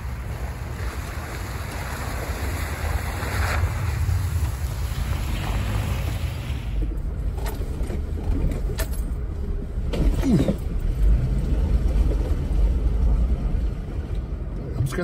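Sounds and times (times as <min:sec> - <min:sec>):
car engine low rumble: 0:00.0 - 0:15.0.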